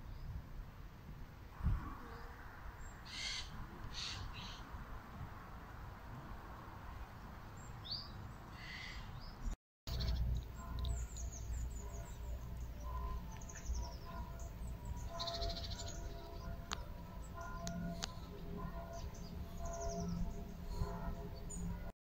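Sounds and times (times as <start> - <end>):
small birds chirping: 7.2 - 21.8.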